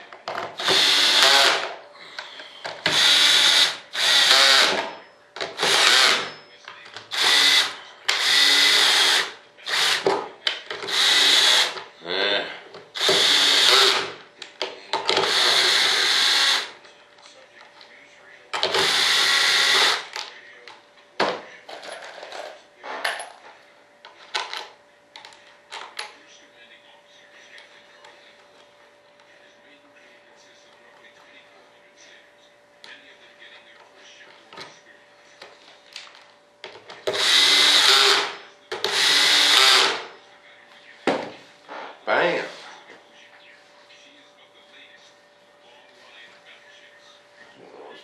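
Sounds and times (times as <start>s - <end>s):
cordless drill running: 0.6s - 1.7s, 2.8s - 4.8s, 5.6s - 6.3s, 7.1s - 10.0s, 10.9s - 11.8s, 13.0s - 14.1s, 15.2s - 16.7s, 18.7s - 20.1s, 37.1s - 40.1s.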